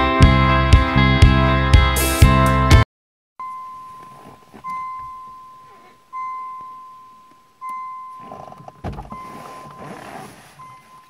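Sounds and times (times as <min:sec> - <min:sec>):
car door warning beeper: 0:03.4 - 0:11.0.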